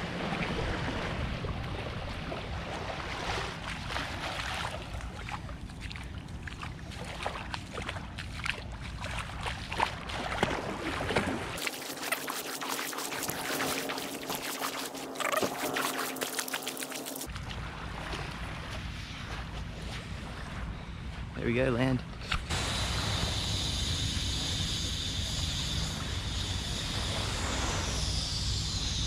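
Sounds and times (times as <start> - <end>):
bare feet splashing in water: 0.2 - 20.6.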